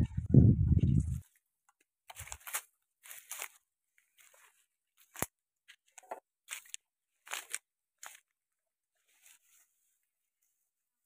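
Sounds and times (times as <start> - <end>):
footsteps crunching through dry grass: 0.7 - 1.4, 2.1 - 10.0.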